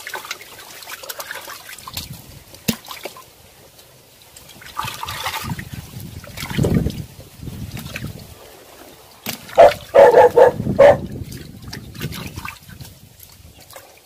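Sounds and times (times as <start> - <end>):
muddy water sloshing: 0.0 - 14.0
loud animal cries: 9.6 - 11.0.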